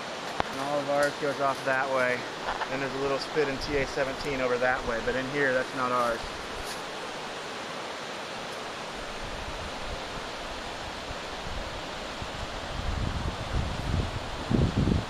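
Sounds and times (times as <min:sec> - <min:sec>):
river rapids rushing: 0:00.0 - 0:15.0
wind buffeting microphone: 0:09.0 - 0:15.0.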